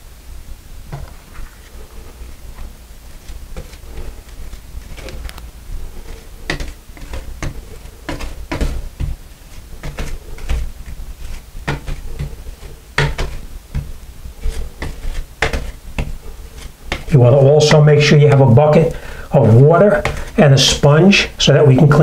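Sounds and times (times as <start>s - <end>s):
putty knife scraping tile: 6.0s - 20.4s.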